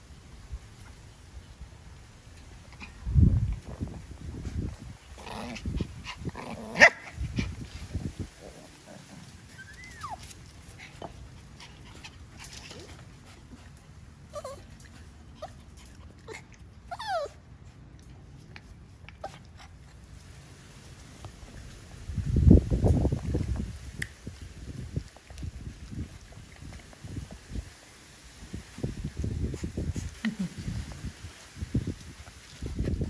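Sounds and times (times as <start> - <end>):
puppies whimpering: 9.4 - 10.2, 16.3 - 17.4.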